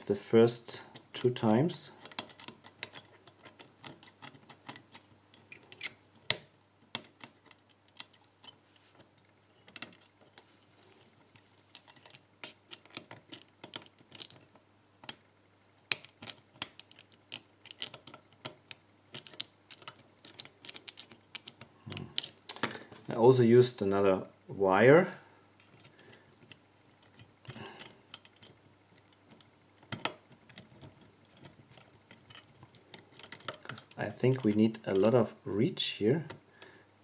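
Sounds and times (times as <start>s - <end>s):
lock pick clicking in padlock: 1.0s - 8.6s.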